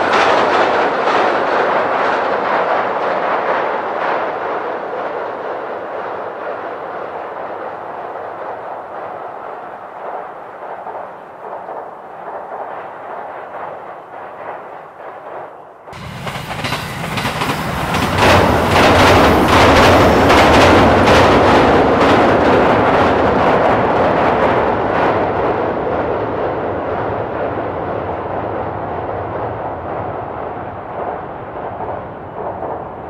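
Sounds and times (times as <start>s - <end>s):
train wheels clattering over rails: 0.0s - 25.6s.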